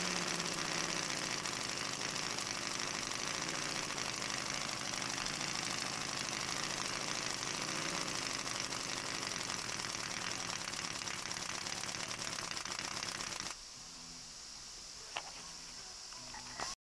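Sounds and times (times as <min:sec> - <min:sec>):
model radial engine running: 0:00.0 - 0:13.6.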